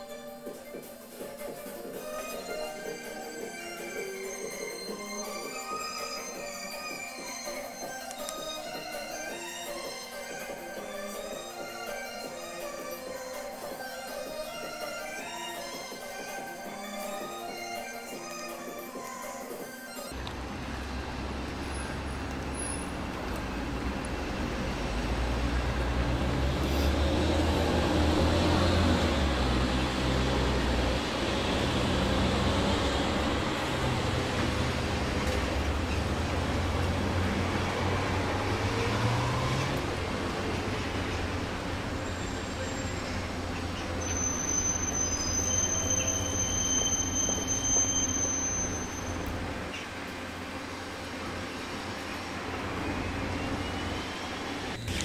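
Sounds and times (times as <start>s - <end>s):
city street traffic: 20.0s - 55.0s
heavy vehicle engine running: 20.2s - 44.9s
high steady squeal: 41.8s - 49.9s.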